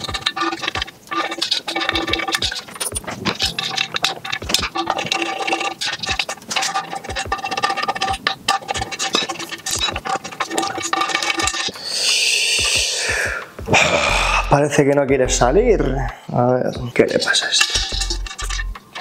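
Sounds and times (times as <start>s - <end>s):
hand tool clicking and rattling: 0.0s - 11.8s
background music: 0.0s - 19.0s.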